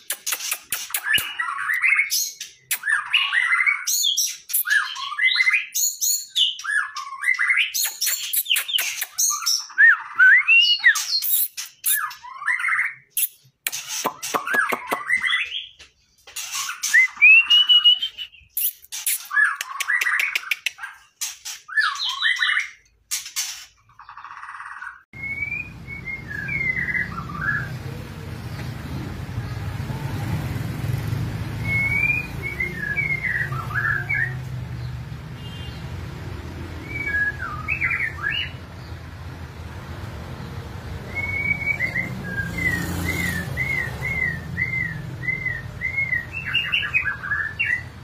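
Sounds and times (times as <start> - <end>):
sharp bird clicks: 0.0 - 3.3, 7.7 - 9.5, 13.1 - 17.1, 18.5 - 21.7
birds singing gliding whistles: 0.0 - 22.9, 23.7 - 28.7, 30.2 - 35.8, 36.6 - 39.0, 40.4 - 48.0.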